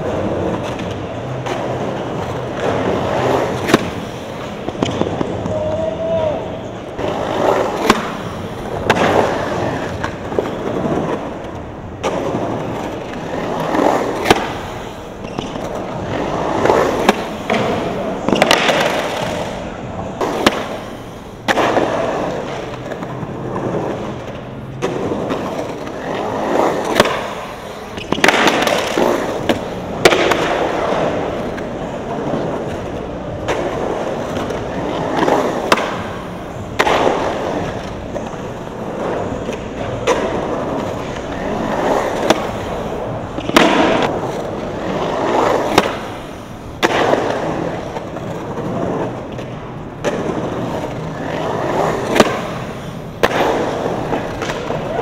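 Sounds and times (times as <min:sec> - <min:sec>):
skateboard wheels rolling on concrete: 0:00.0 - 0:55.0
skateboard clacking on concrete: 0:06.9 - 0:20.9, 0:21.5 - 0:55.0.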